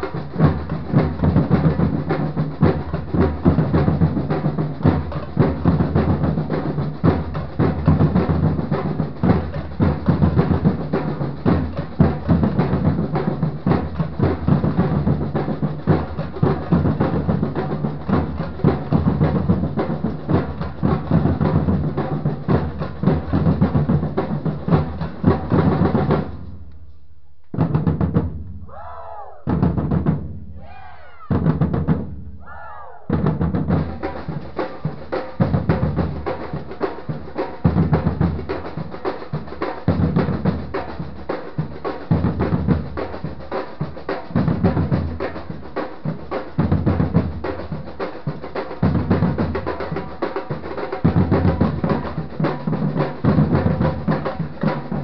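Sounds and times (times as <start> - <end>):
samba drum group playing: 0.0 - 26.6, 27.5 - 28.6, 29.4 - 32.3, 33.1 - 55.0
bass drums: 0.0 - 55.0.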